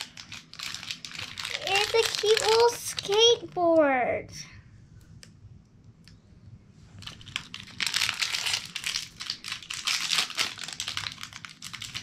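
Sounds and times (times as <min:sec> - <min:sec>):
wrappers crinkling and tearing: 0:00.0 - 0:03.6, 0:07.0 - 0:12.0.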